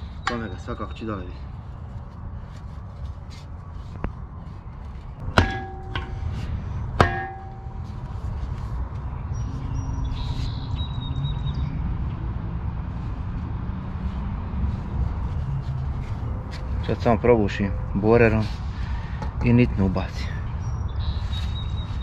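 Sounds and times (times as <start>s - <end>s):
metal knocks on shovel head: 5.3s - 6.2s, 7.0s - 7.7s.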